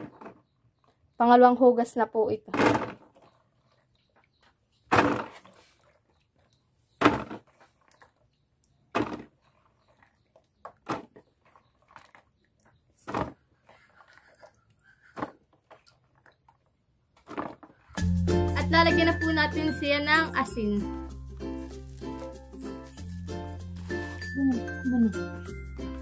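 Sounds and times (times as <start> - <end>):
water sloshing: 2.6 - 16.7.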